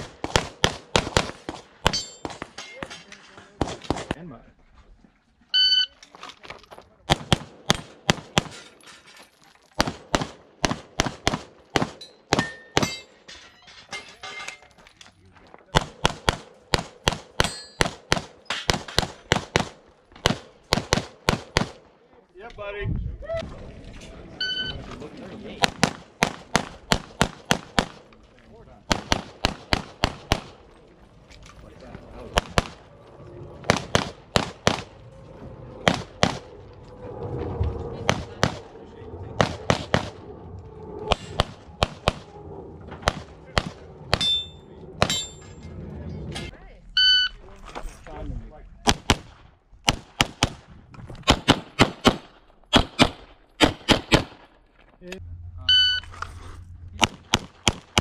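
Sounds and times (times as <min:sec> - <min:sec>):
pistol shots in quick pairs: 0:15.7 - 0:21.8, 0:25.6 - 0:28.0, 0:28.9 - 0:30.6, 0:33.6 - 0:34.9, 0:48.9 - 0:50.6, 0:51.2 - 0:54.4, 0:57.0 - 0:58.0.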